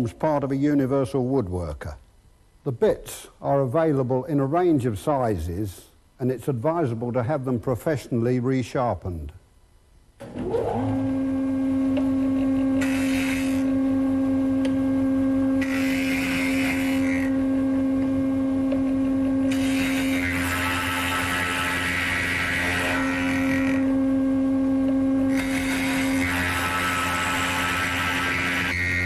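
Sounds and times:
mortiser whine: 0:10.2 - 0:29.0.

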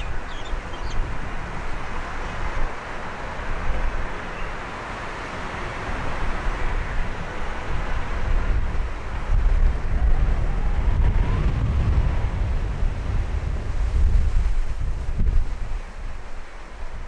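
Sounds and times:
bird chirps: 0:00.0 - 0:01.0
distant city traffic: 0:00.0 - 0:17.0
wind buffeting microphone: 0:00.0 - 0:17.0.

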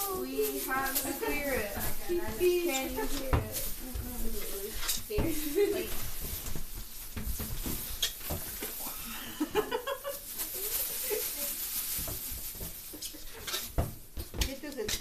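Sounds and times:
faint voices: 0:00.0 - 0:06.0.

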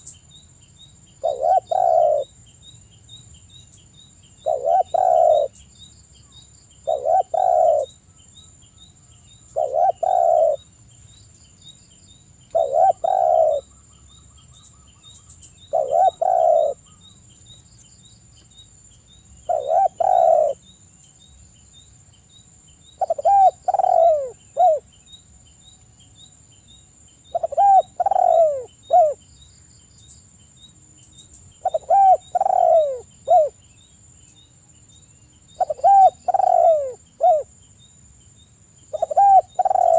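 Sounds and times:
dove cooing: 0:01.2 - 0:02.3, 0:04.4 - 0:05.6, 0:06.8 - 0:08.0, 0:09.5 - 0:10.6, 0:12.5 - 0:13.7, 0:15.7 - 0:17.0, 0:19.5 - 0:20.6, 0:23.0 - 0:24.8, 0:27.3 - 0:29.2, 0:31.6 - 0:33.6, 0:35.6 - 0:37.5, 0:38.9 - 0:39.9.

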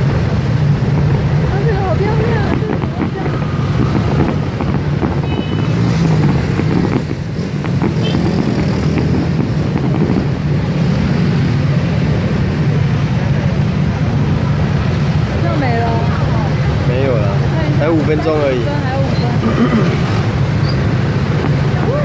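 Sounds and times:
fireworks booming: 0:00.0 - 0:16.8, 0:19.0 - 0:22.0
fireworks popping and crackling: 0:00.0 - 0:22.0.

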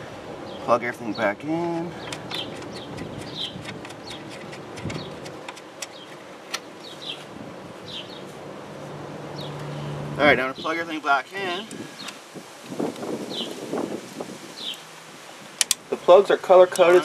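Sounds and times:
bird chirps: 0:02.0 - 0:04.4, 0:06.8 - 0:08.3, 0:14.6 - 0:14.8.

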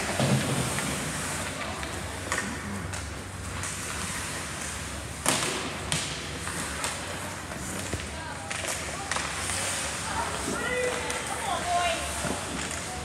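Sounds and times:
crowd noise: 0:00.0 - 0:13.0
skates on ice: 0:00.0 - 0:13.0
sharp hockey clacks: 0:07.7 - 0:11.3.

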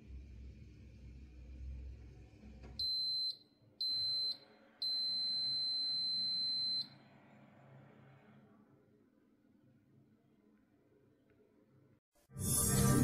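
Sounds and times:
dishwasher high beeps: 0:02.8 - 0:07.0.

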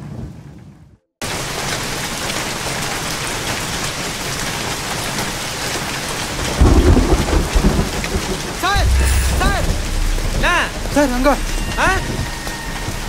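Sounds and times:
heavy rain pouring: 0:01.2 - 0:13.0
thunder rumble: 0:06.4 - 0:13.0.

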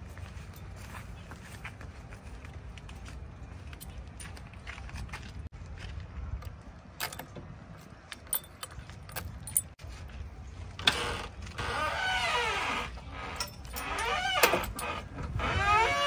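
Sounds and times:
squealing creak: 0:10.8 - 0:16.0.

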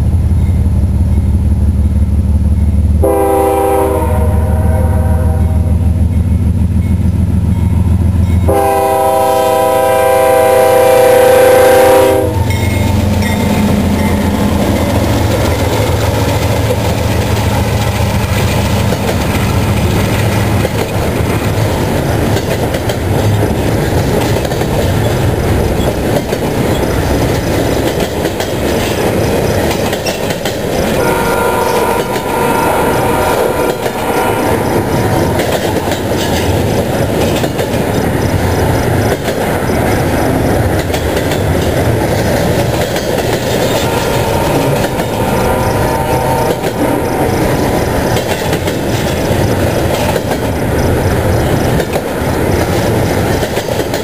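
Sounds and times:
diesel locomotives rumbling: 0:00.0 - 0:54.0
high ringing tone: 0:12.2 - 0:15.7, 0:43.8 - 0:48.0
wheels clattering over rails: 0:12.4 - 0:54.0.

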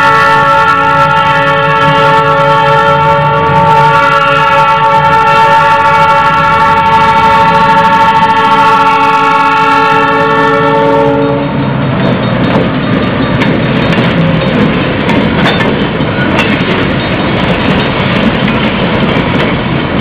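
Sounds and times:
locomotive air horn: 0:00.0 - 0:11.6
train wheels clattering over rails: 0:11.1 - 0:20.0.

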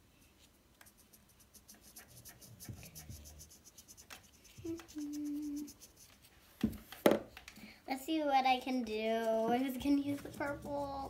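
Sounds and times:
marker tips scratching: 0:00.7 - 0:07.0, 0:08.9 - 0:11.0.

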